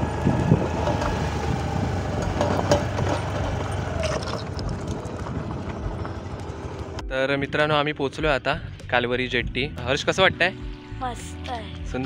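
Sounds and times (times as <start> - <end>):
wind rumbling on microphone: 0.0 - 7.0.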